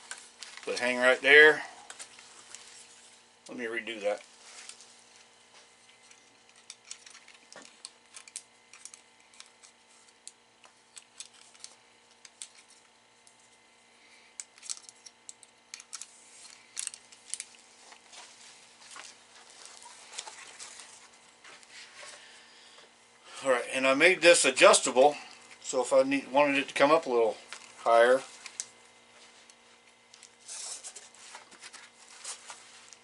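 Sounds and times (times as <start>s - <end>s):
carabiners clicking and rattling: 14.4s - 17.5s.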